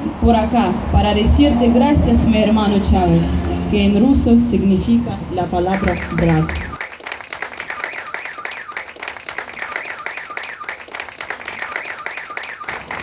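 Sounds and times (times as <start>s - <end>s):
crowd applauding: 5.7s - 13.0s.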